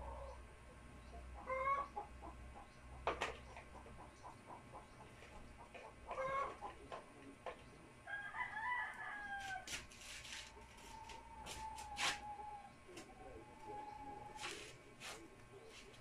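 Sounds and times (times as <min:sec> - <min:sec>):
animal calls: 0:01.4 - 0:02.7, 0:10.5 - 0:15.8.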